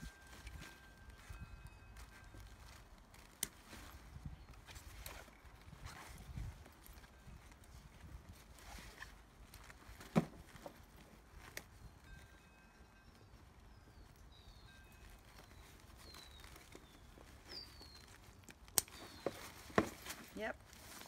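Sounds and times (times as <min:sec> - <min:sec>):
faint birds chirping: 0:11.7 - 0:20.6
bag strap and clip clicks: 0:15.8 - 0:20.4.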